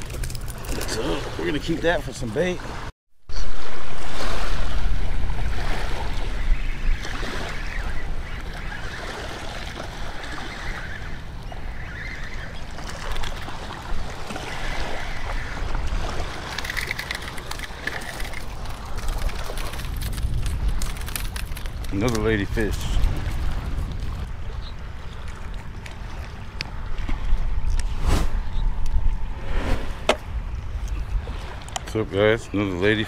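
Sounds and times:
wind buffeting microphone: 0.0 - 33.0
small waves on shingle: 7.0 - 11.2, 11.8 - 27.2.

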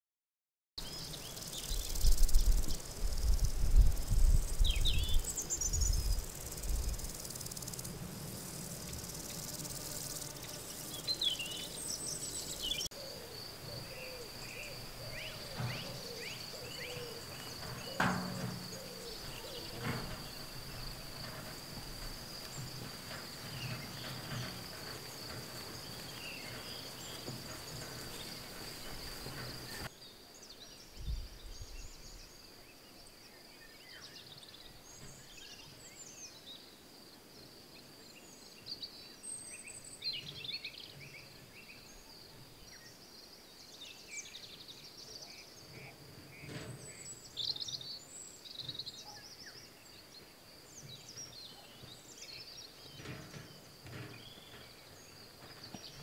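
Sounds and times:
insect trill: 0.8 - 30.4
birds chirping: 0.8 - 36.9
wind on microphone: 1.5 - 10.2, 31.0 - 32.2.

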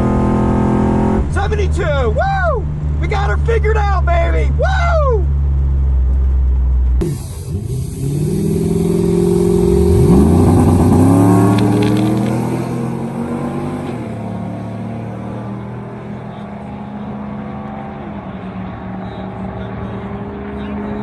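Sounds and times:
engine drone inside truck cab: 0.0 - 21.0
trucks revving hard down drag strip: 7.0 - 21.0.

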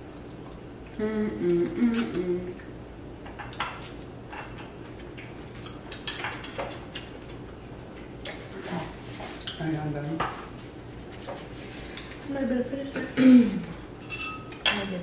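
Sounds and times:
person humming: 1.0 - 2.6.

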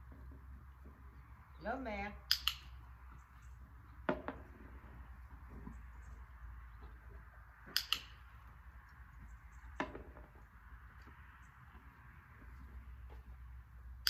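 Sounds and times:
training clicker clicking: 2.3 - 2.7, 7.7 - 8.2.

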